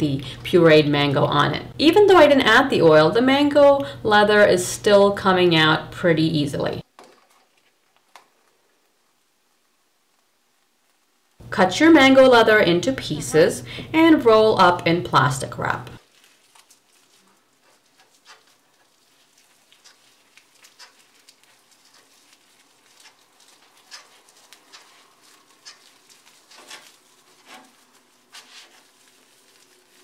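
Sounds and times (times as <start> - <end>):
plastic wrap crinkling: 6.8 - 11.1, 14.2 - 30.0.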